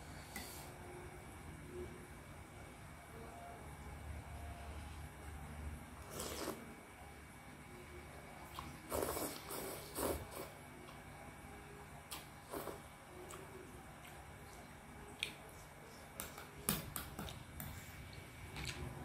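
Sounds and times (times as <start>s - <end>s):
slurping noodles: 6.0s - 6.7s, 8.6s - 10.5s, 12.4s - 12.8s.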